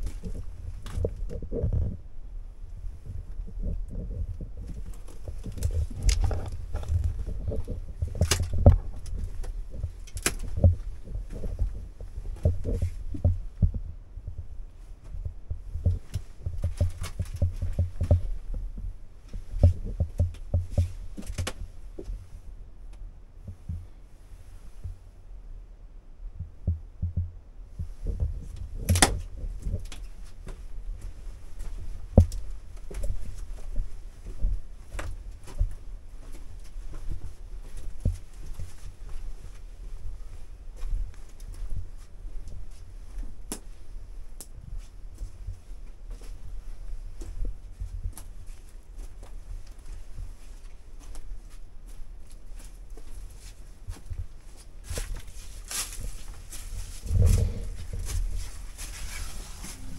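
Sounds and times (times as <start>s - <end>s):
low thumps of movement: 0.0s - 22.4s, 55.7s - 59.9s
footsteps on rock floor: 2.9s - 14.4s, 27.8s - 40.1s, 52.3s - 59.9s
loud scrape: 58.8s - 59.9s.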